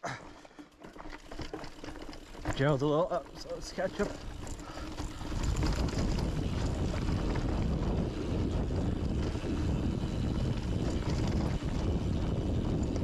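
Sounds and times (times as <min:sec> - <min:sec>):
bike rattling over trail: 0:00.0 - 0:13.0
wind rushing over microphone: 0:04.3 - 0:13.0.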